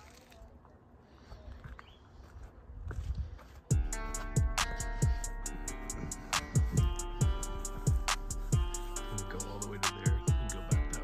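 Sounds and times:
hip-hop beat music: 3.7s - 11.0s.

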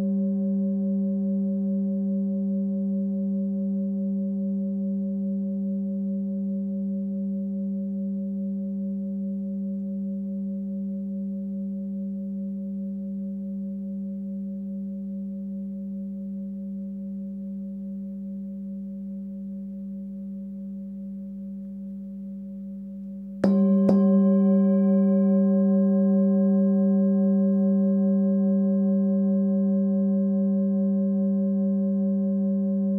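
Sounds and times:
singing bowl ringing: 0.0s - 32.9s
singing bowl being struck: 23.4s - 32.9s.

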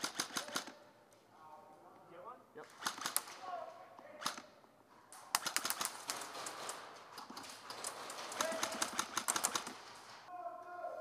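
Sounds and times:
airsoft gunfire clicks: 0.0s - 0.8s, 2.8s - 3.4s, 5.3s - 6.3s, 8.4s - 10.0s
pellets hitting wooden walls: 5.3s - 10.3s.

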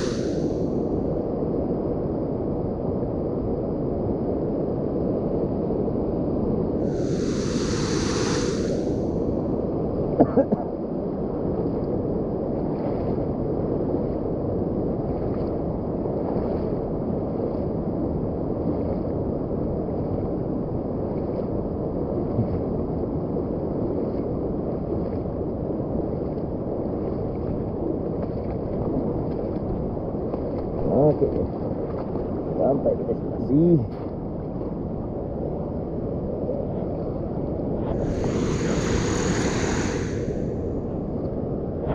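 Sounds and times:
river water rushing: 0.0s - 0.6s
bright hiss: 0.0s - 0.8s, 6.8s - 9.2s, 37.9s - 40.7s.

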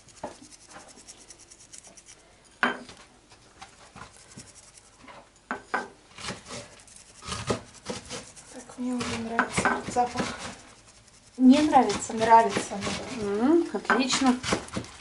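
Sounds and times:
faint rustling: 0.0s - 5.5s.

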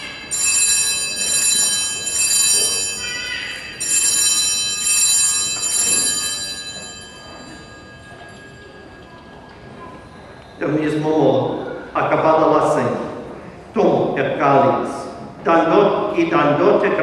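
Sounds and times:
small bells ringing: 0.0s - 11.0s.

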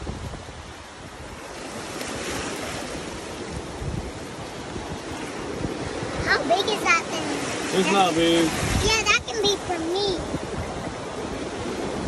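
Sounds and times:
water sloshing and lapping: 0.0s - 12.0s
wind on microphone: 0.0s - 12.0s.

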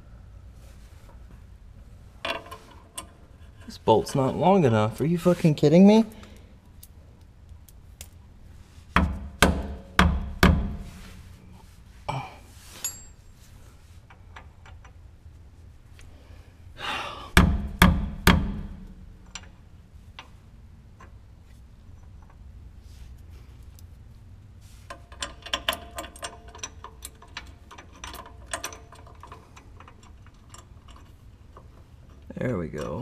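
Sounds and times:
metal hardware knocking: 9.0s - 10.9s, 17.4s - 19.6s
small metal clicks: 19.2s - 20.4s, 24.8s - 33.0s.

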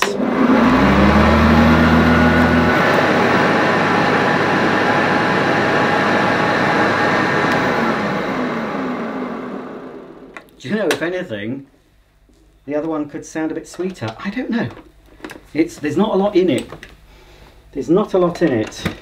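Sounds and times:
deep hum: 0.0s - 10.4s
vacuum cleaner running on carpet: 0.0s - 10.5s.

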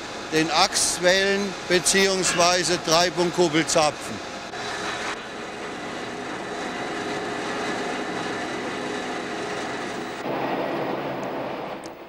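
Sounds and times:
lathe machine noise: 0.0s - 10.3s.

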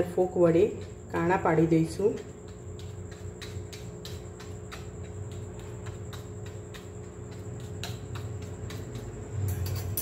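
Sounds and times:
steady low hum: 0.0s - 10.0s
fork tines tapping metal plate: 7.6s - 10.0s.

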